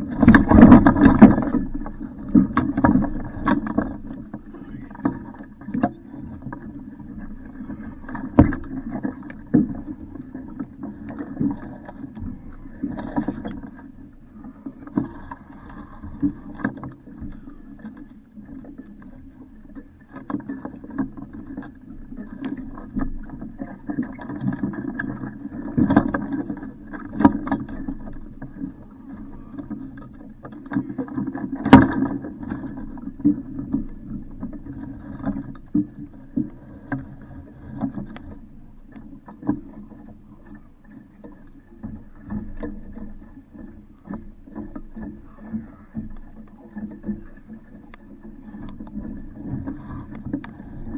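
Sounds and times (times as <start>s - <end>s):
knocks against hull: 0.0s - 6.0s, 8.1s - 9.9s, 30.5s - 33.9s
water slapping against hull: 0.0s - 50.9s.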